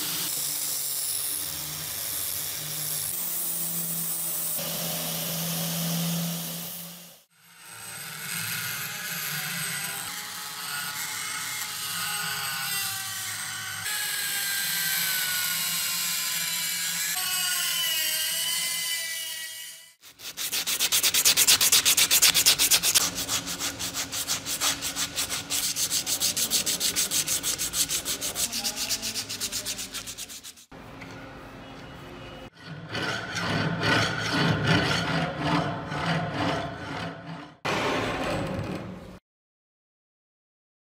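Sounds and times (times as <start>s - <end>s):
rotary tool grinding metal: 6.0s - 30.7s, 32.5s - 37.6s
sandpaper rubbing back and forth: 20.0s - 30.8s.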